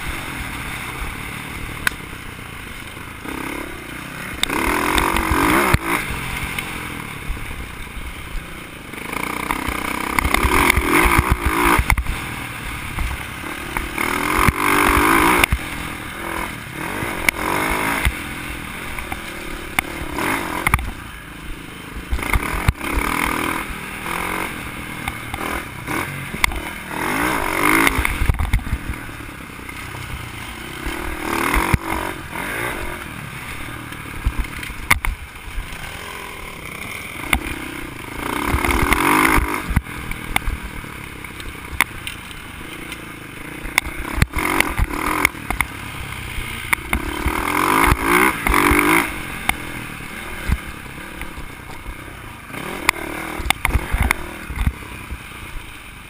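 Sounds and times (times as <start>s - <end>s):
dirt bike engine surging: 0.0s - 56.0s.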